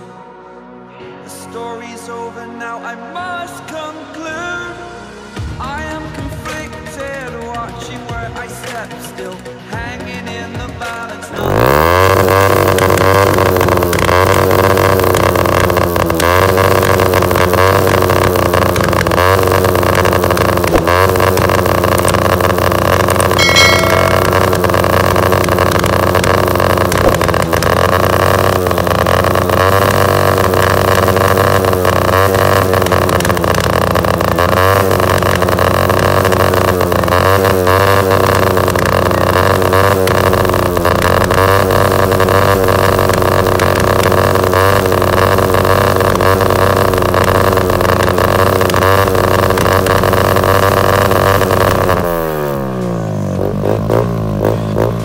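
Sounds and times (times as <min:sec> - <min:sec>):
motorcycle engine idling: 0:11.4 - 0:55.0.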